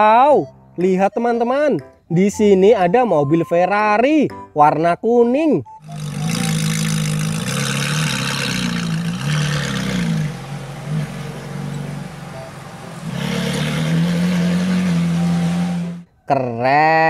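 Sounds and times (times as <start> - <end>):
car engine revving: 5.8 - 16.1.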